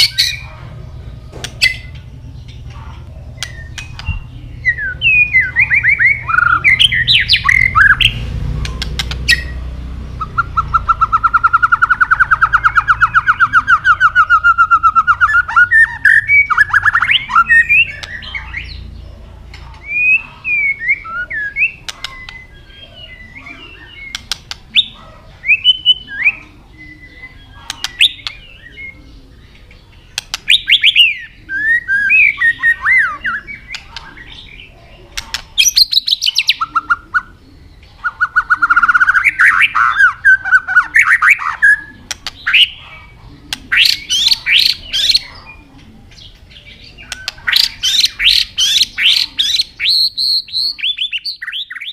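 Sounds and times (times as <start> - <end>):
sharp bird clicks: 1.4 - 4.3, 5.6 - 9.6, 10.2 - 18.7, 19.5 - 20.7, 21.6 - 22.6, 24.0 - 25.0, 27.5 - 28.5, 29.6 - 31.3, 32.4 - 34.4, 35.0 - 37.3, 40.8 - 51.9
bird whistled phrases: 10.2 - 18.8, 19.8 - 29.0, 30.5 - 34.6, 46.8 - 51.9.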